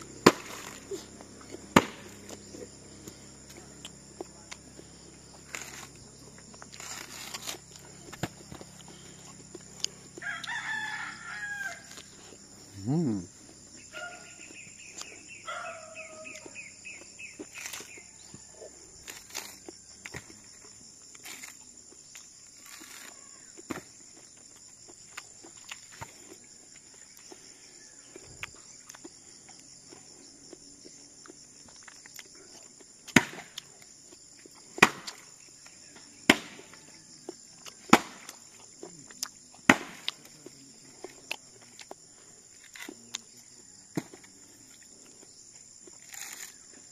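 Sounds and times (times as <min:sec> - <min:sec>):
metal tool chopping coconuts: 0:00.0 - 0:02.5, 0:05.4 - 0:08.7, 0:33.1 - 0:33.6, 0:34.8 - 0:35.3, 0:37.7 - 0:38.5, 0:39.6 - 0:40.3
high buzz of insects: 0:00.0 - 0:46.9.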